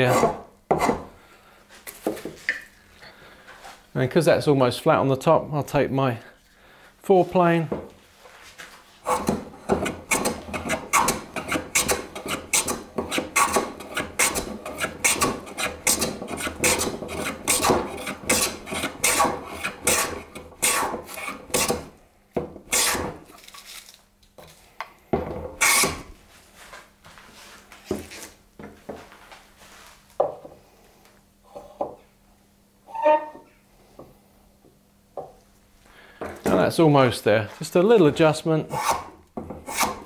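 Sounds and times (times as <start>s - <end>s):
hand plane rasping along wood: 0.0s - 1.1s, 9.0s - 21.9s, 22.7s - 23.2s, 38.7s - 40.0s.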